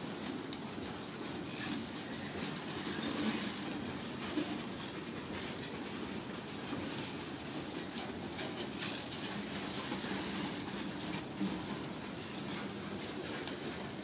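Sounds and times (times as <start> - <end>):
train wheels rumbling on rails: 0.0 - 14.0
wheels clacking over rail joints: 0.0 - 14.0.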